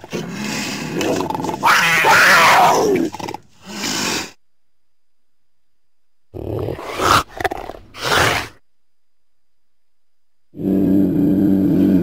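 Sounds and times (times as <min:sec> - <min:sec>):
mountain lion growling: 0:00.0 - 0:03.4, 0:06.3 - 0:08.6.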